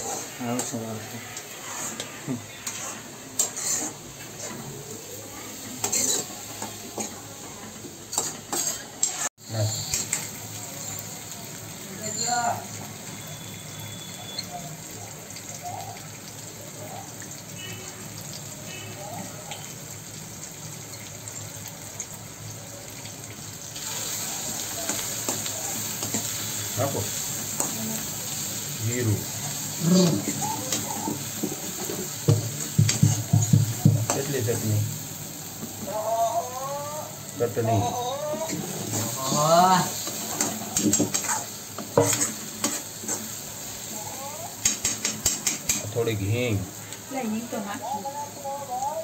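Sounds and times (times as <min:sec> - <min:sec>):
metal spoon scraping a pan: 0:00.0 - 0:04.7, 0:05.8 - 0:07.2, 0:08.1 - 0:11.0, 0:24.9 - 0:27.8, 0:29.4 - 0:34.6, 0:38.4 - 0:43.4, 0:44.6 - 0:46.0
green onions sizzling in a pan: 0:00.0 - 0:49.0.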